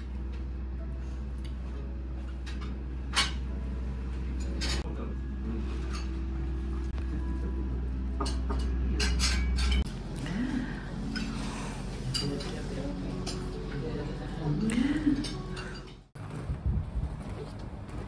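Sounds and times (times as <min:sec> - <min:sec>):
low room hum: 0:00.0 - 0:18.0
cutlery and china clinking: 0:04.4 - 0:04.8, 0:08.2 - 0:09.9, 0:12.0 - 0:13.8.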